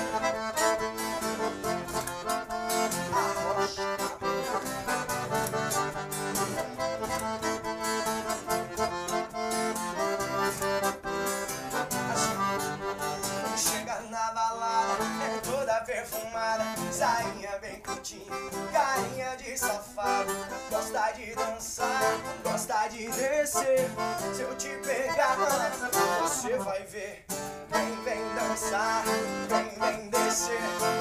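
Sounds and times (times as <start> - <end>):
band keeping a steady beat: 0.0 - 13.6
accordion solo: 0.0 - 31.0.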